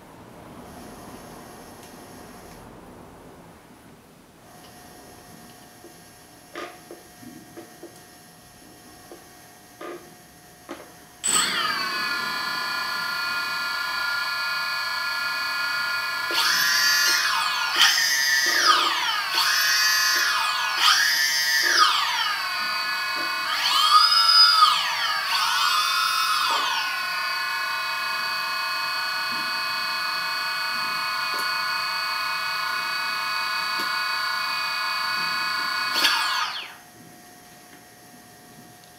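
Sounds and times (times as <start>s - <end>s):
high multi-toned motor whine: 10.7s - 37.6s.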